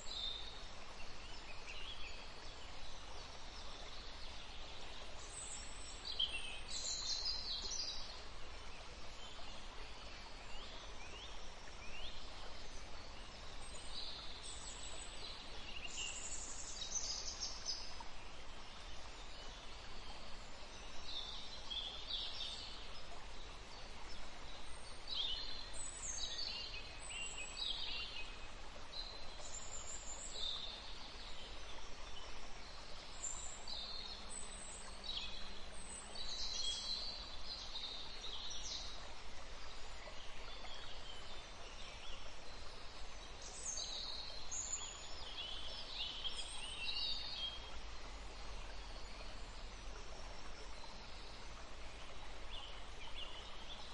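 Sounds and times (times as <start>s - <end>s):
steady background hiss: 0.0s - 53.9s.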